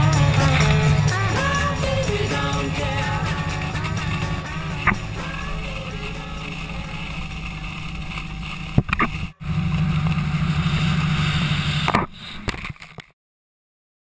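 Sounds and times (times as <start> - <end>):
water rushing: 0.0 - 11.9
boat engine drone: 0.0 - 12.8.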